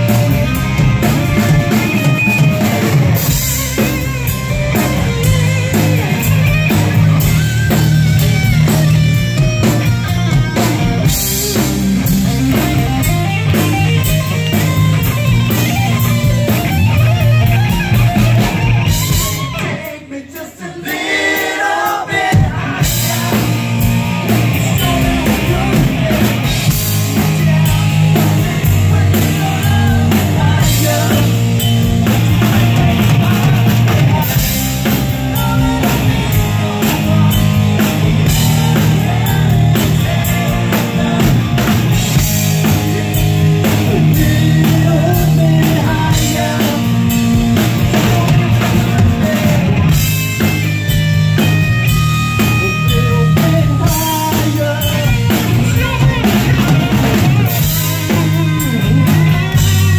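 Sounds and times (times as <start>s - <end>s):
live rock band playing: 0.0s - 59.9s
voices singing: 18.9s - 50.1s, 52.5s - 59.9s.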